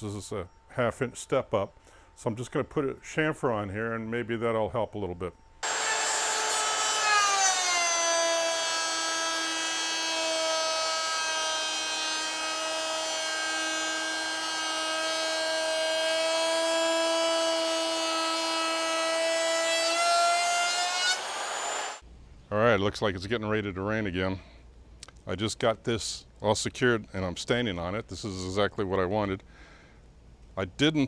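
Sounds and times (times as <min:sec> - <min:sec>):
router motor whine: 0:05.6 - 0:22.0.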